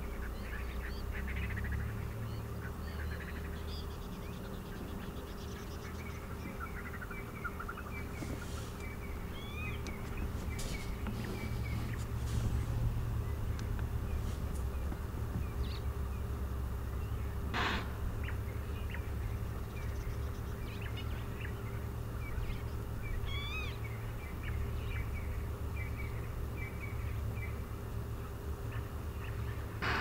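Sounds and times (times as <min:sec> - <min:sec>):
clear pitched bird call: 0:00.2 - 0:15.9, 0:17.0 - 0:21.6, 0:22.3 - 0:27.6
bird chirps: 0:00.2 - 0:16.3
rasping bird call: 0:17.5 - 0:19.0.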